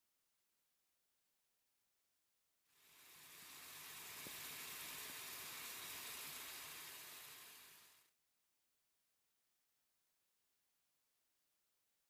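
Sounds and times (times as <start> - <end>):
liquid boiling in a pan: 2.7 - 8.1.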